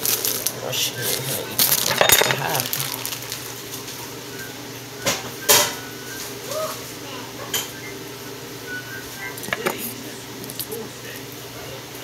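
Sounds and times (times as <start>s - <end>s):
dishes and utensils clattering: 1.6s - 4.0s, 5.0s - 5.9s, 9.3s - 10.7s.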